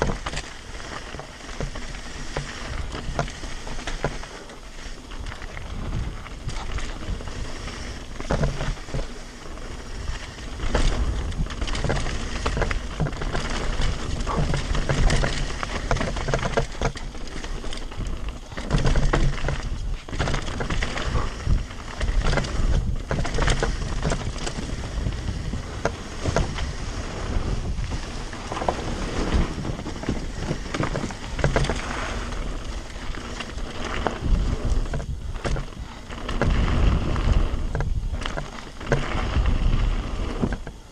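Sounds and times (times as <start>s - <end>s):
bike knocks and rattles: 0.0s - 40.9s
tyres rolling over gravel: 0.0s - 40.9s
wind rushing over microphone: 0.0s - 40.9s.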